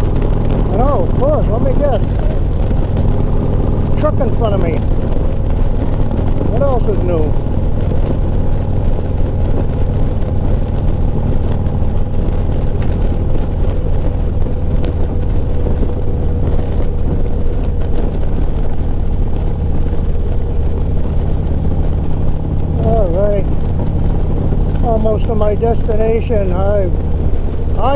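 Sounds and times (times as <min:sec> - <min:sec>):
motorcycle engine cruising: 0:00.0 - 0:27.9
wind and road rush: 0:00.0 - 0:27.9.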